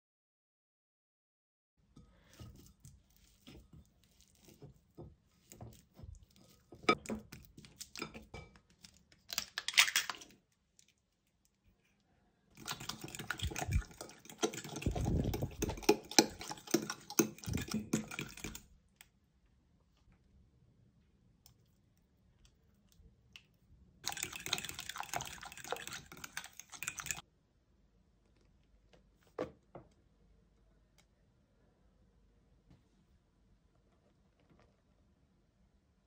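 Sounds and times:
fork beating squelching mixture: 2.2 - 8.9, 12.6 - 18.7, 24.0 - 27.2
egg cracking: 2.5 - 11.6, 12.6 - 19.1, 22.4 - 27.2
fork scraping glass bowl: 12.6 - 18.6, 24.0 - 27.2.

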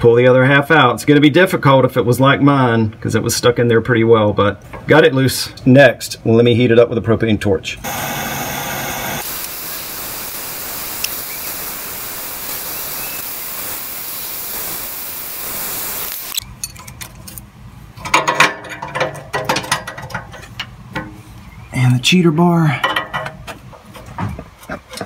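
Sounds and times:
torch flame hissing: 7.8 - 16.4.

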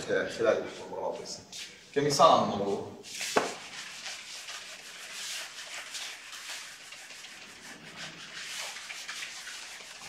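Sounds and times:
eraser wiping whiteboard: 3.0 - 10.0.

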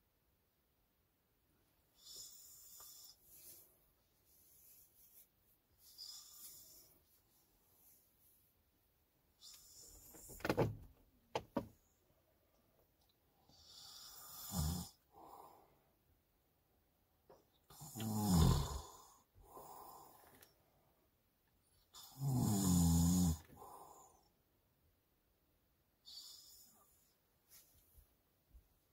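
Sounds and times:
soft breaths: 1.6 - 10.4, 12.0 - 16.2, 18.7 - 21.9, 23.4 - 24.6, 25.9 - 28.9
man snoring: 13.5 - 15.4, 17.7 - 20.2, 22.0 - 24.2.

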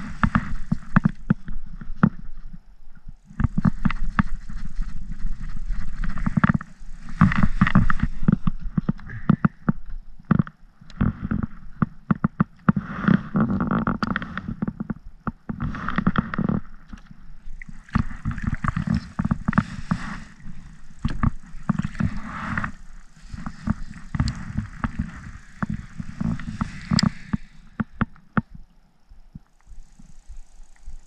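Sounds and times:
fishing gear knocking and rubbing: 0.0 - 2.5, 3.2 - 28.6
water gurgling against hull: 15.5 - 28.6.

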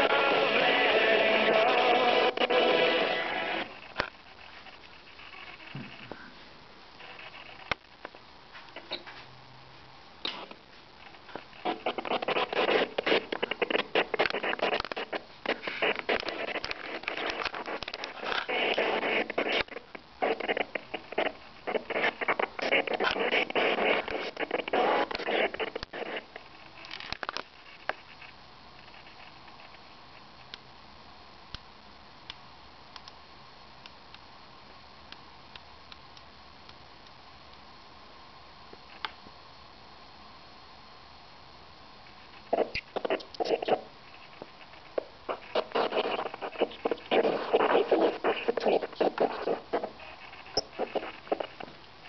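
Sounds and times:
choppy radio station audio: 0.0 - 32.1, 41.4 - 52.0
faint radio hiss: 0.0 - 52.0.

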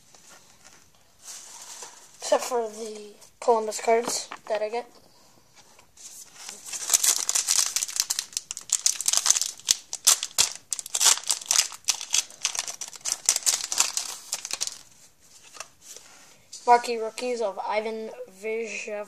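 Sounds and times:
wrapper crinkling and tearing: 6.4 - 15.8.

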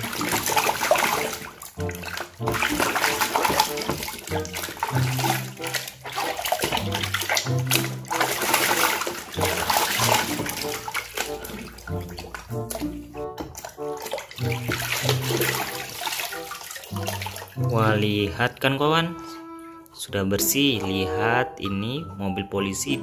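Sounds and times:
water sloshing and splashing: 0.0 - 22.0
background music: 0.0 - 23.0.

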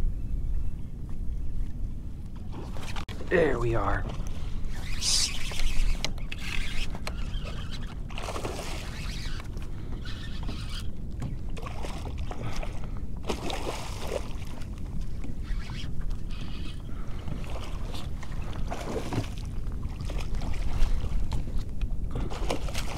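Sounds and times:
wind rumble on microphone: 0.0 - 22.9.

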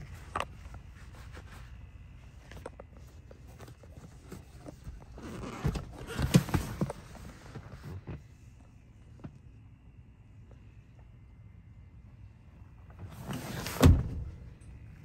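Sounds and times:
rustling against leather seats: 0.0 - 9.5, 12.6 - 15.0.

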